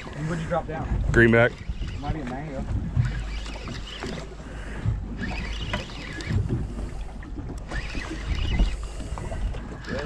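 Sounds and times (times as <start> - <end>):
boat and water rumble: 0.0 - 10.0
wind on microphone: 0.2 - 4.2, 4.8 - 10.0
fishing reel cranking: 1.4 - 4.3, 5.1 - 6.6, 7.5 - 10.0.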